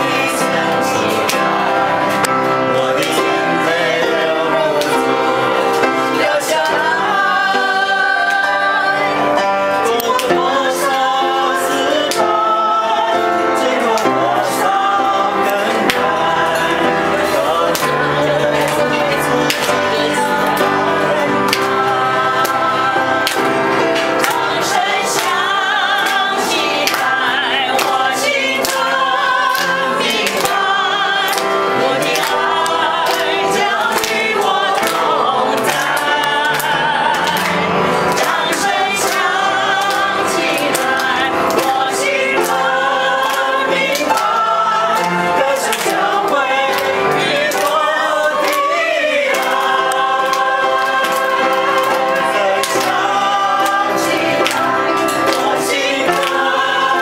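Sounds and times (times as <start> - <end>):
group singing in chorus: 0.0 - 57.0
people clapping in time: 0.0 - 57.0.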